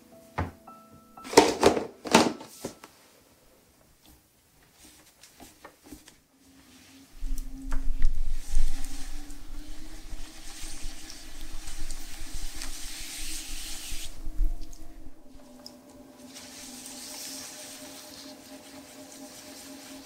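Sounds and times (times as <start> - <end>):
pottery wheel hum: 6.2 - 20.0
wet hands rubbing clay: 8.4 - 20.0.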